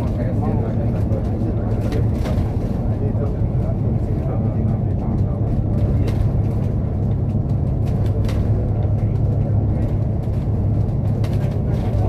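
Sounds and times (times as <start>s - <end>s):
vehicle engine and road noise: 0.0s - 12.0s.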